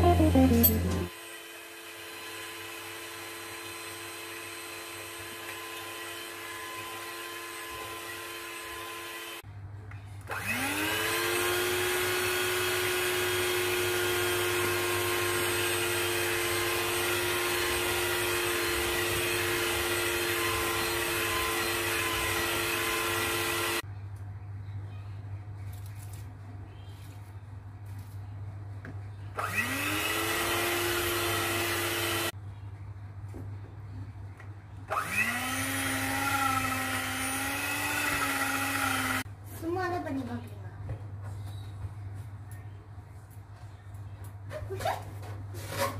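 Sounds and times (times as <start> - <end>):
electric hand mixer whining: 0.0 - 9.4, 10.3 - 23.8, 29.4 - 32.3, 34.9 - 39.3.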